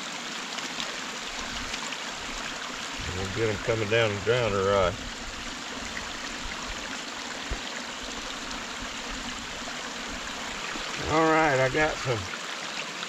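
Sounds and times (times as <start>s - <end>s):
water running through dam gap: 0.0s - 13.0s.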